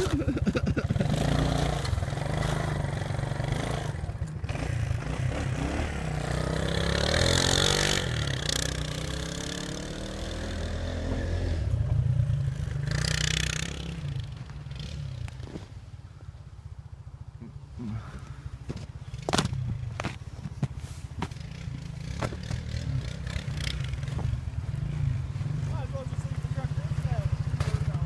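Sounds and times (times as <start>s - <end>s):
quad bike engine revving: 0.0s - 15.6s, 21.3s - 28.0s.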